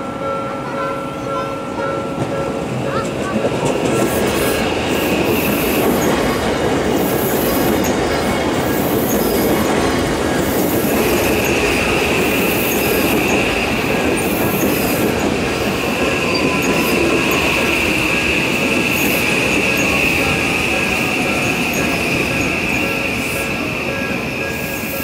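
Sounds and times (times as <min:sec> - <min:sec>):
train wheels rumbling on rail: 0:00.0 - 0:25.0
high wheel squeal: 0:07.0 - 0:09.7, 0:10.5 - 0:25.0.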